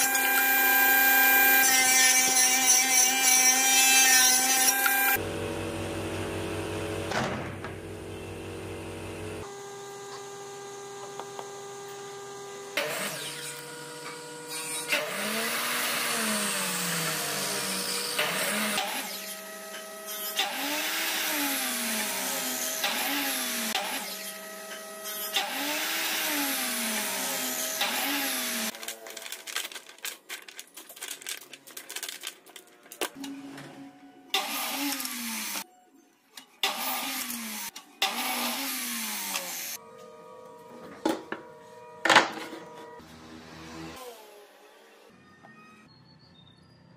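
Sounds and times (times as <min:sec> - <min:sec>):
miter saw cutting wood: 0:00.0 - 0:05.8, 0:09.4 - 0:28.8, 0:36.6 - 0:39.8, 0:42.6 - 0:45.1.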